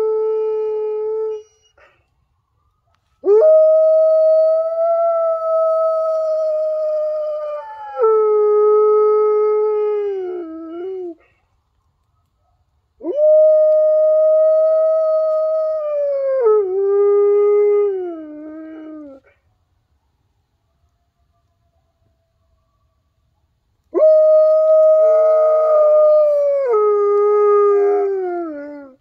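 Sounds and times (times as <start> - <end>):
dog howling: 3.2 - 11.2, 24.0 - 29.0.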